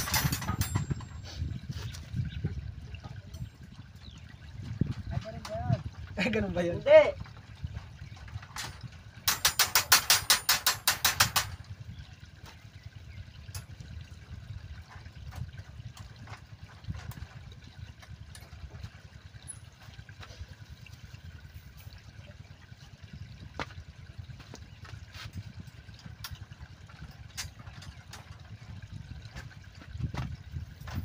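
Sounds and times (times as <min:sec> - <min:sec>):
low steady rumble: 0:00.0 - 0:31.0
tie wire clicking on steel bars: 0:09.3 - 0:11.6.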